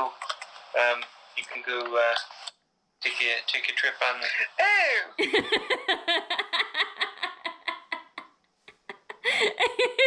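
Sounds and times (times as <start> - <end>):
people laughing: 4.1 - 8.2, 8.8 - 10.0.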